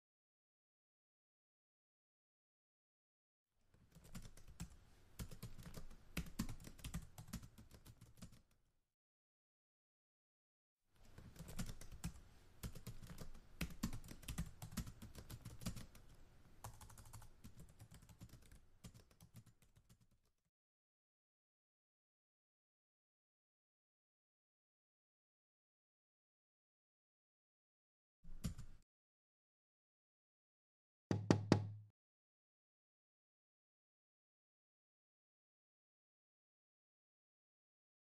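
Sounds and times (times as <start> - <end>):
typing on laptop keyboard: 3.9 - 8.6, 11.0 - 20.3, 28.3 - 28.8.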